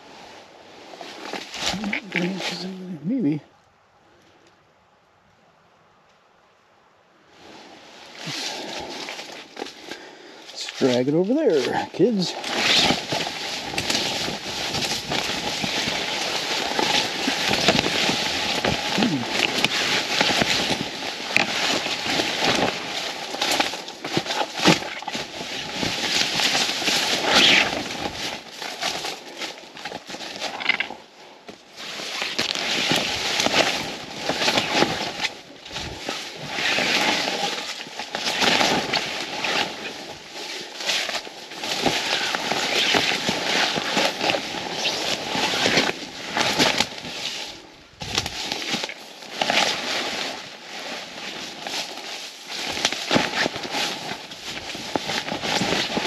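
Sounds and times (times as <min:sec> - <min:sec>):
dry ground cover rustling and crunching: 0:00.0 - 0:56.0
blind scraping over ground: 0:31.8 - 0:47.4.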